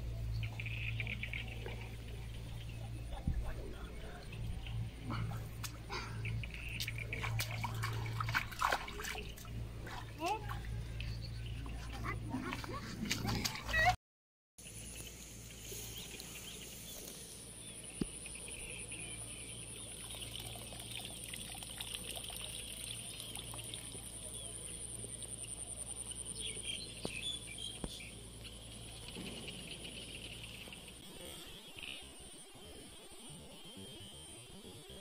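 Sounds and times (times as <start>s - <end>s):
trickling water: 0.3s - 13.9s, 18.2s - 31.0s
high-pitched buzz: 23.9s - 35.0s.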